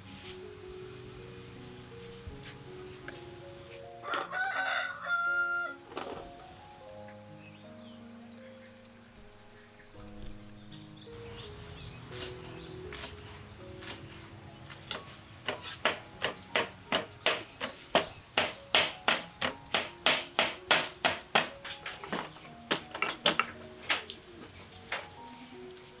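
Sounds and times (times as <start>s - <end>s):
knife chopping on wooden board: 14.7s - 23.5s.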